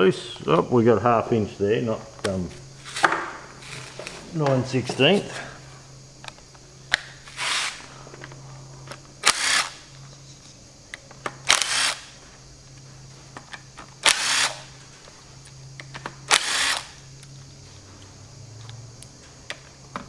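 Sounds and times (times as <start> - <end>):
impact wrench bursts: 7.2 - 7.9, 9.2 - 9.9, 11.4 - 12.2, 14.0 - 14.7, 16.3 - 17.0.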